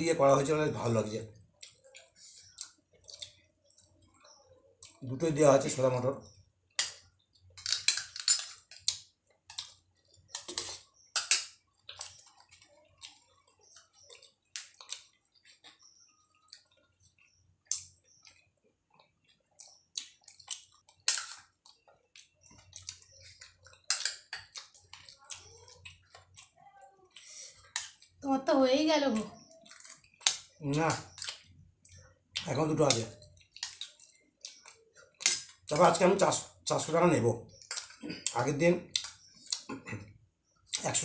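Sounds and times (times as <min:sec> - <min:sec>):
people chewing and smacking: 0:00.0 - 0:28.3, 0:29.1 - 0:41.0.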